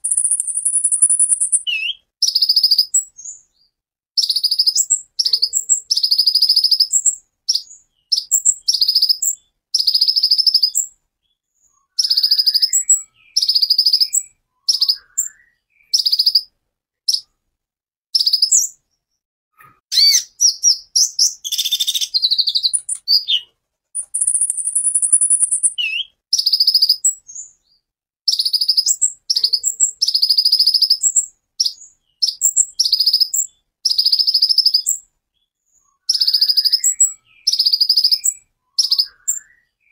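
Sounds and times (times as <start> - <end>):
high bird whistle: 0.0 - 3.0, 11.9 - 16.5, 19.9 - 23.4, 24.0 - 27.5, 36.0 - 39.8
bird singing buzzy bursts: 0.1 - 2.7.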